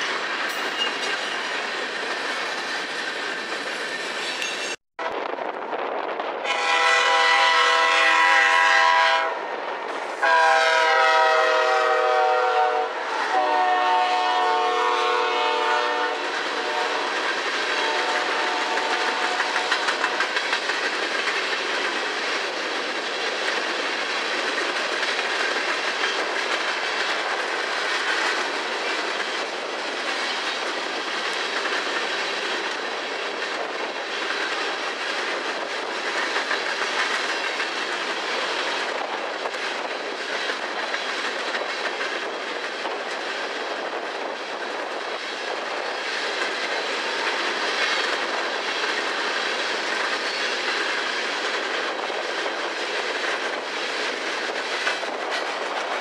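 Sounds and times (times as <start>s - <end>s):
wheels clacking over rail joints: 0.0s - 4.8s, 16.4s - 56.0s
train cars rumbling past: 0.0s - 56.0s
locomotive air horn blasts: 6.4s - 9.4s, 10.2s - 20.2s.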